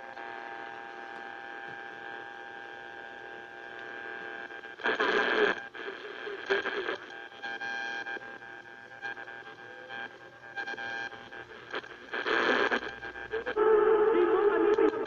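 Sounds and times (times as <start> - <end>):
radio static hiss: 0.0 - 15.0
radio station snatches: 11.6 - 15.0.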